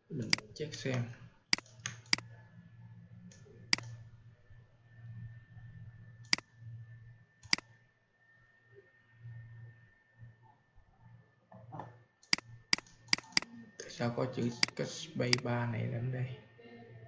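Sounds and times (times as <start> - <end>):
faint high whine: 0.0 - 17.0
computer mouse clicks: 0.2 - 2.4, 3.3 - 4.0, 6.2 - 6.5, 7.4 - 7.7, 12.2 - 13.9.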